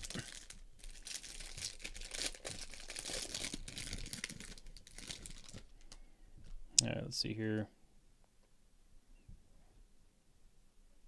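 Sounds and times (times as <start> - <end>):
plastic wrapper crinkling: 0.0 - 6.6.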